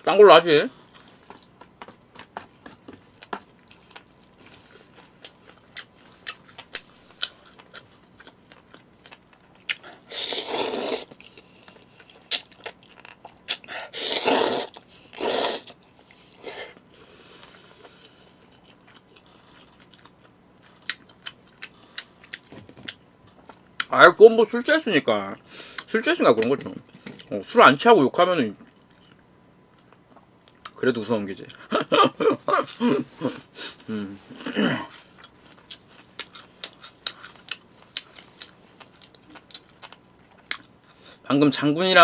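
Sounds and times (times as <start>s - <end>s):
wet chewing and mouth smacks: 1.0s - 10.0s, 35.2s - 41.0s
noodle slurps: 10.1s - 11.1s, 13.9s - 15.7s.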